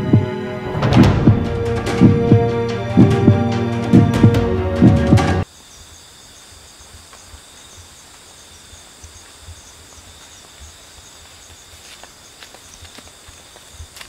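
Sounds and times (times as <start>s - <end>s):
faint low thumping: 0.0s - 5.4s
insects chirping: 5.4s - 14.0s.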